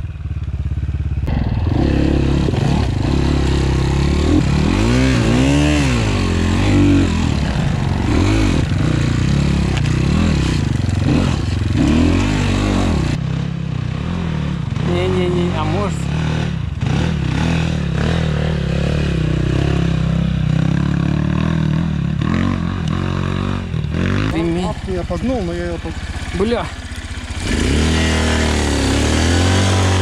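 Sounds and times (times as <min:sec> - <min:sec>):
dirt bike engines revving: 0:01.1 - 0:30.0
engine clatter: 0:23.7 - 0:30.0.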